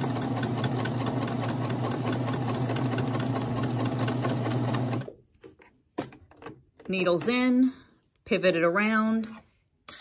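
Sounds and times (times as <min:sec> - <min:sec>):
sewing machine stitching: 0:00.0 - 0:05.2.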